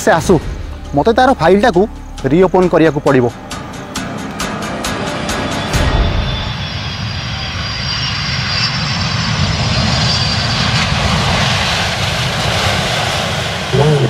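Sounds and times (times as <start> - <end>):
jet engines rushing: 0.0 - 14.0
faint high engine whine: 1.7 - 14.0.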